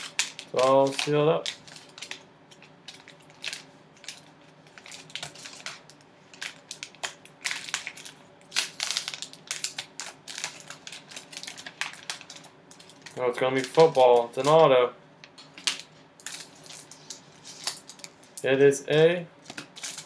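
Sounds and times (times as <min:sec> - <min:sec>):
plastic pouch tearing and crinkling: 0:00.0 - 0:14.6, 0:15.5 - 0:18.1, 0:19.5 - 0:20.0.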